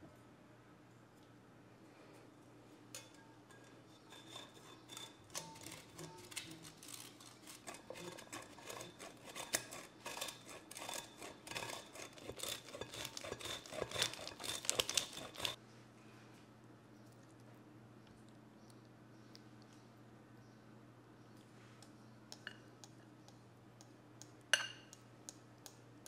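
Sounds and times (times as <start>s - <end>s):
cheese grating on metal grater: 3.8s - 15.6s.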